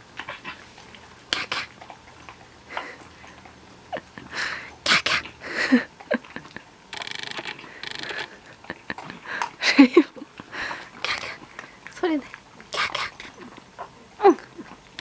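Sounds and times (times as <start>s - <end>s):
animals crunching kibble: 0.0s - 15.0s
kibble clicking against bowls: 6.0s - 15.0s.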